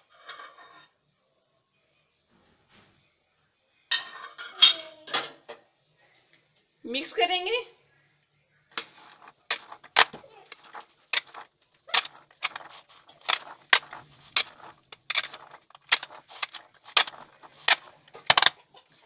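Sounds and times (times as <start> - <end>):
spoon scraping ceramic bowl: 8.8 - 18.5.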